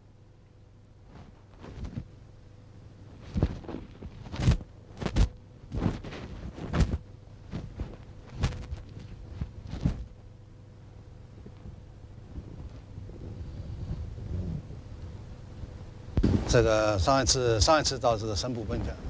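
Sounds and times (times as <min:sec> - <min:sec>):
footsteps thumping: 0:03.2 - 0:10.2, 0:16.2 - 0:16.7.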